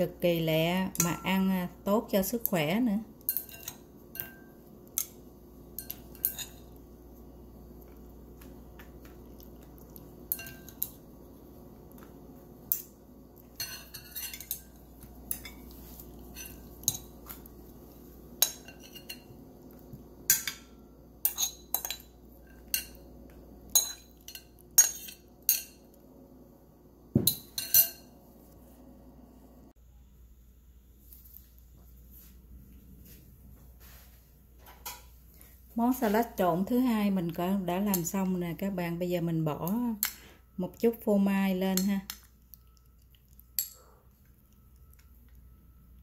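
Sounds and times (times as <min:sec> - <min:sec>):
metal spoon clinking on glass: 0:03.2 - 0:05.1, 0:05.8 - 0:06.7, 0:10.3 - 0:10.9, 0:13.6 - 0:15.7, 0:21.2 - 0:23.0, 0:23.7 - 0:25.8, 0:27.3 - 0:28.1.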